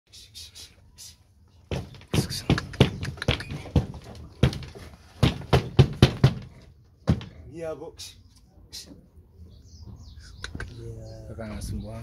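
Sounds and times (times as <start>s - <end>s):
piglets knocking wooden slats: 1.7s - 7.3s.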